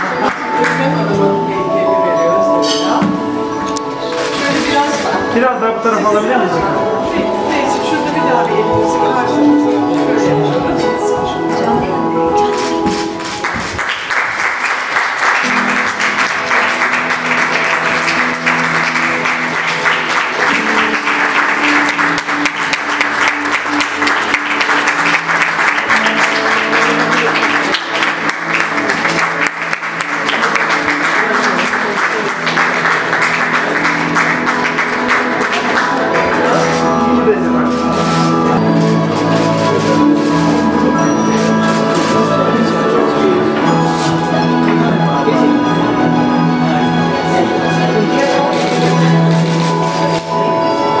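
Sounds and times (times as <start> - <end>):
audience applauding: 0.0 - 1.0, 13.2 - 42.4
music with held notes: 0.0 - 51.0.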